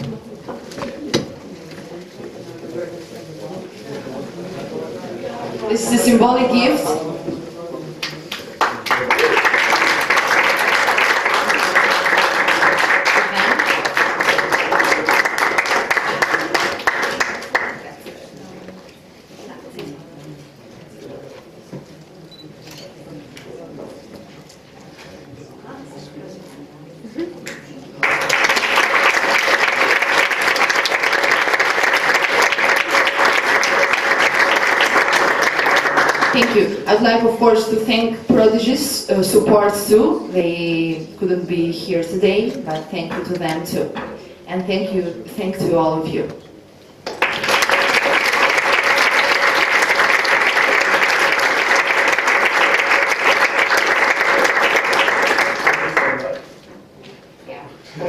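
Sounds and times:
crowd applauding: 0:08.0 - 0:17.9, 0:28.0 - 0:36.7, 0:47.0 - 0:56.6.

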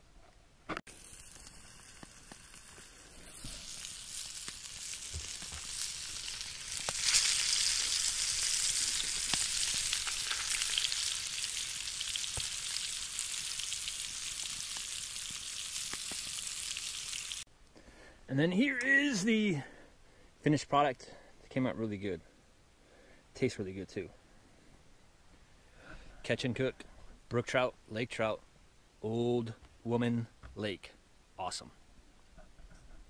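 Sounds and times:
fish sizzling in lard: 0:00.9 - 0:17.5.

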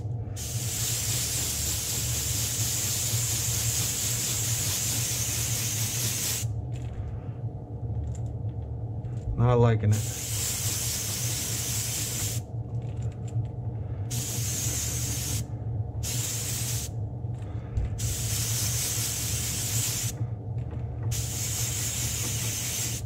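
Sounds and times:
airbrush spraying hiss: 0:00.0 - 0:06.5, 0:09.9 - 0:12.4, 0:14.1 - 0:16.9, 0:18.0 - 0:20.2, 0:21.1 - 0:23.0
steady low hum: 0:00.0 - 0:23.0.

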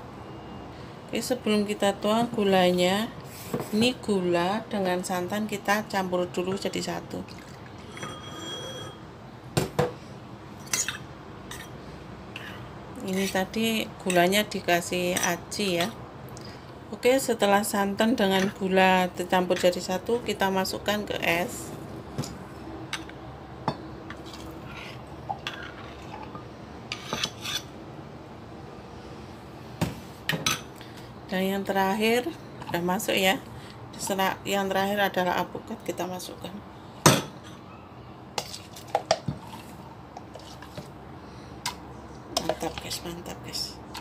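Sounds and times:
metal spoon clinking ceramic bowl: 0:07.8 - 0:09.0.

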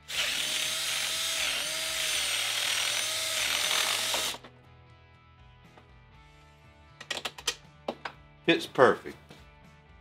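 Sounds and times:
power drill whining: 0:00.0 - 0:04.5.

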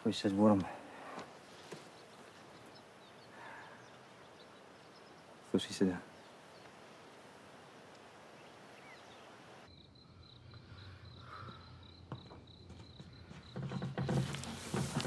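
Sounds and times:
outdoor hiss: 0:00.0 - 0:15.0
cricket chirping: 0:06.1 - 0:15.0
thuds and shuffling: 0:11.5 - 0:15.0.

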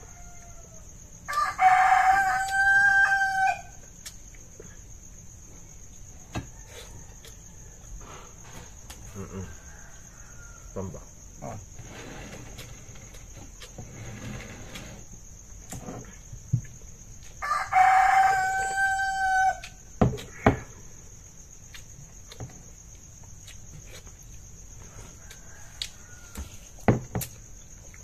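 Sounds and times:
rooster crowing: 0:00.0 - 0:03.8, 0:09.1 - 0:11.0, 0:17.4 - 0:19.9, 0:24.9 - 0:26.8
high insect trill: 0:00.0 - 0:28.0.

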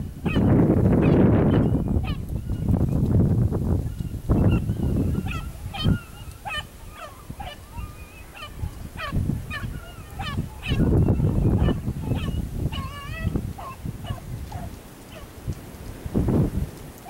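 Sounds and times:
distant beagle baying: 0:04.4 - 0:15.3.

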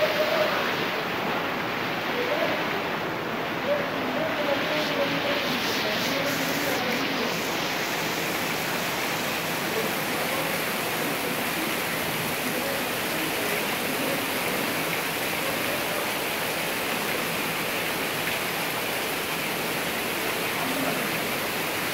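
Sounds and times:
waterfall rushing: 0:00.0 - 0:21.9.

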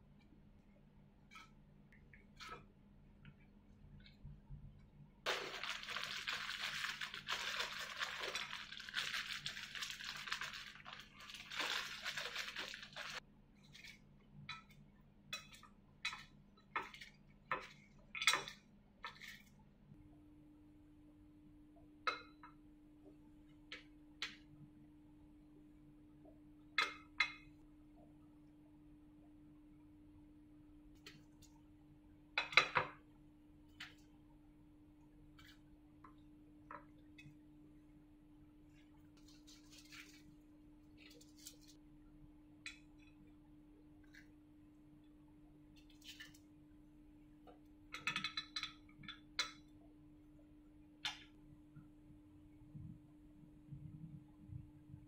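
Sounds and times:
faint steady hum: 0:00.0 - 0:55.0
plastic bag crinkling: 0:05.3 - 0:13.2, 0:39.2 - 0:40.3.

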